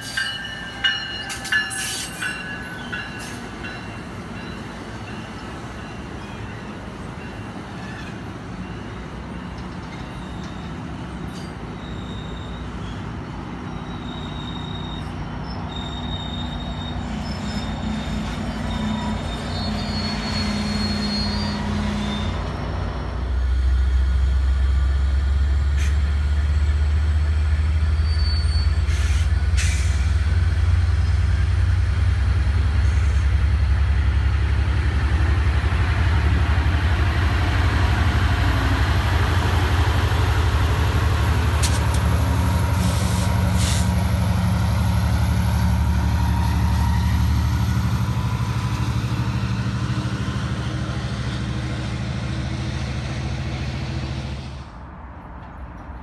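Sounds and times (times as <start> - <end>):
diesel locomotive engine drone: 0.0 - 56.0
short air hisses: 28.9 - 30.1, 42.8 - 44.0.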